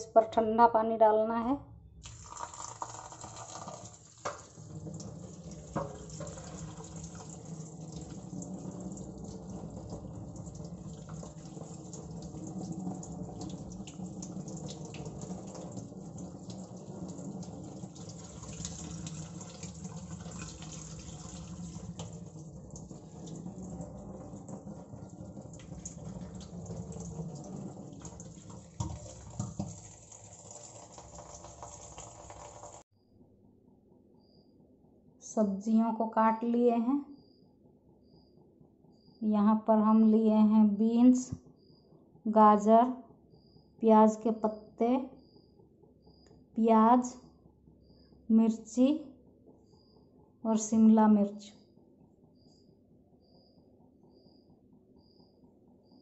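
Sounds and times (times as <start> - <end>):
tap water running into colander: 2.0 - 32.8.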